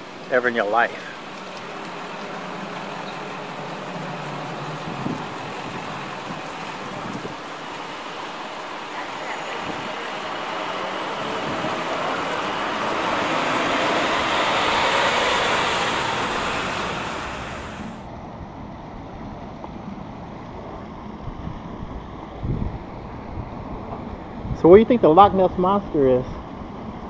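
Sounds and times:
outdoor background: 0:00.0 - 0:27.0
vehicle driving past: 0:00.8 - 0:18.1.

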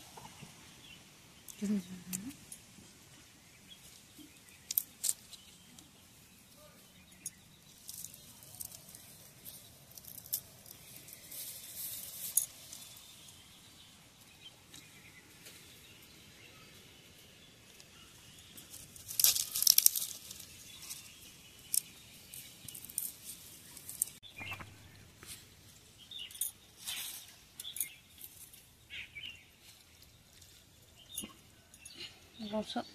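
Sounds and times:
roasted fish crackling and tearing: 0:18.7 - 0:24.2.

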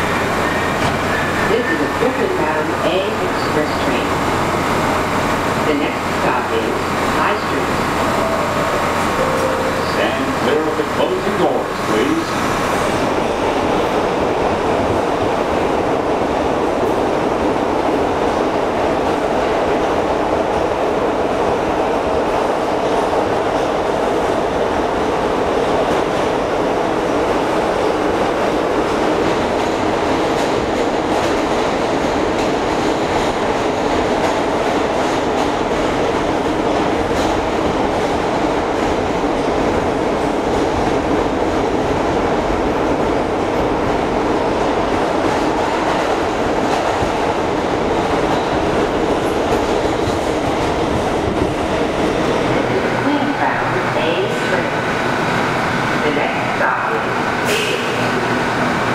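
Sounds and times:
train wheels rumbling on rails: 0:00.0 - 0:58.9
rail joint clicks: 0:28.1 - 0:41.6, 0:45.2 - 0:53.0, 0:57.4 - 0:58.8.

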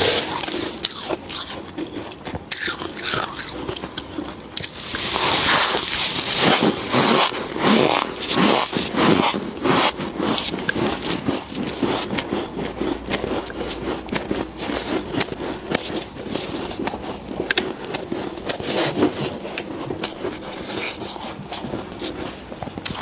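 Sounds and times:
frost being crunched and chewed: 0:00.0 - 0:23.0
fingers scraping frost: 0:04.8 - 0:23.0.

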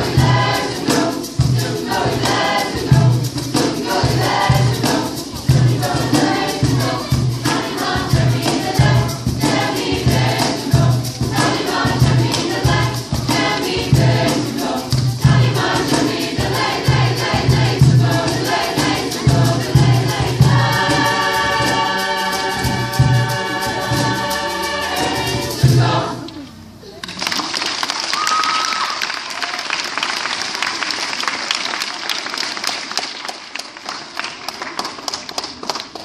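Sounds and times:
choir singing: 0:00.0 - 0:26.5.

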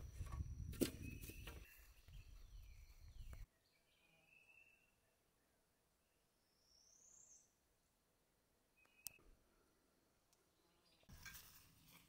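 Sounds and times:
bird chirping: 0:00.0 - 0:07.6, 0:08.8 - 0:09.3.

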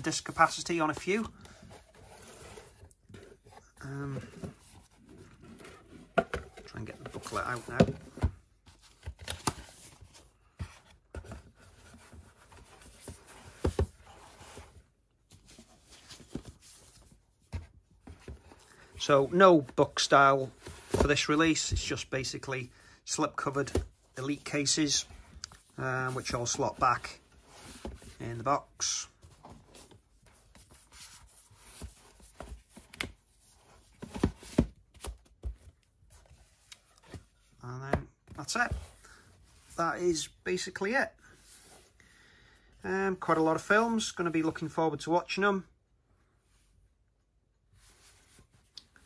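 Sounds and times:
cardboard and plastic rubbing: 0:00.0 - 0:21.9.

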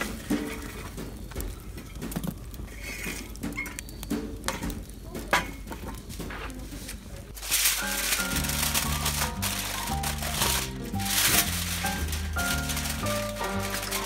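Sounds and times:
burning logs popping: 0:00.0 - 0:14.0
campfire crackling: 0:00.0 - 0:14.0.

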